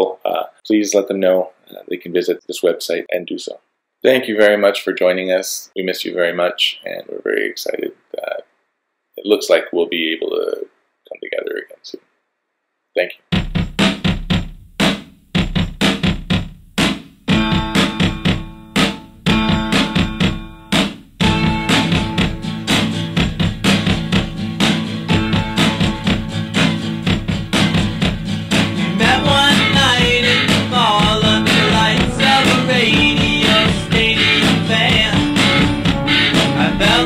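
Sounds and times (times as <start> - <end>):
drum hits: 13.2 - 37.0
band with guitar and drums: 17.3 - 37.0
person singing: 28.6 - 37.0.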